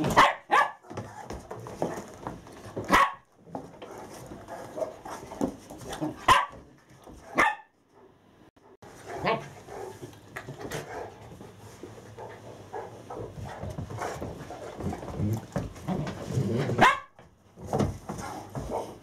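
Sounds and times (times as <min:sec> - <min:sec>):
dogs barking: 0:00.0 - 0:01.2, 0:02.8 - 0:03.3, 0:05.9 - 0:08.2, 0:09.0 - 0:10.0, 0:10.7 - 0:11.2, 0:16.7 - 0:17.2.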